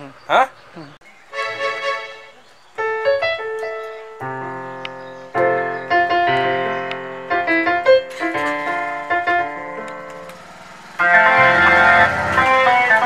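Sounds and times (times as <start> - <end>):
synthesizer piano chords and notes: 1.4 - 13.0.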